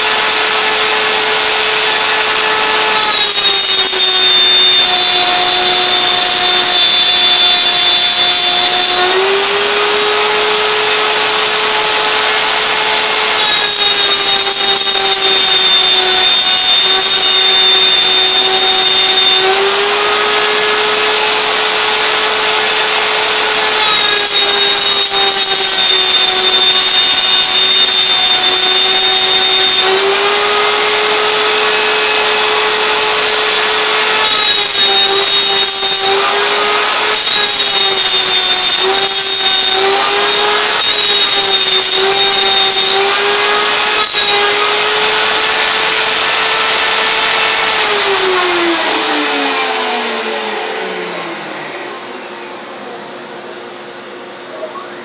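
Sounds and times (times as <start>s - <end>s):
router spindle running: 0.0s - 54.6s
higher whine: 0.0s - 55.0s.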